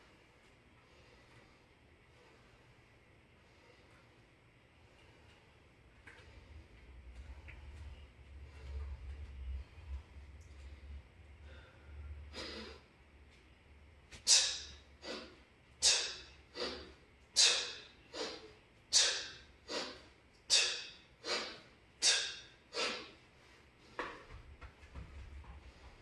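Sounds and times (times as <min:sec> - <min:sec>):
sharp forceful exhales: 0:14.2 - 0:23.1.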